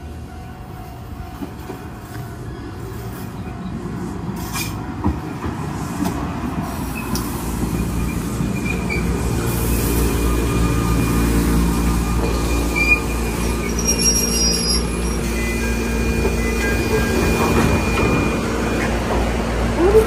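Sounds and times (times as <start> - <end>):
electric train rumbling: 0.0 - 20.0
wheels and brakes squealing: 6.6 - 9.9, 12.1 - 19.0.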